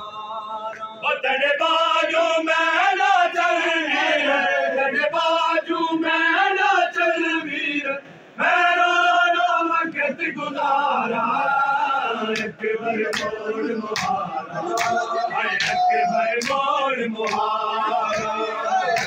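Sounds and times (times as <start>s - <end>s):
men chanting in unison: 0.0s - 19.0s
hands slapping bare chests: 13.1s - 13.4s, 14.0s - 15.0s, 15.6s - 16.6s, 17.2s - 17.5s, 18.1s - 19.0s.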